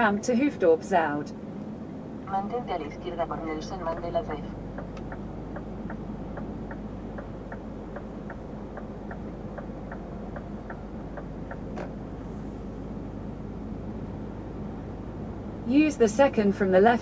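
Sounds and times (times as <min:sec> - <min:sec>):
engine and road drone: 0:00.0 - 0:17.0
turn signal ticking: 0:03.2 - 0:12.2.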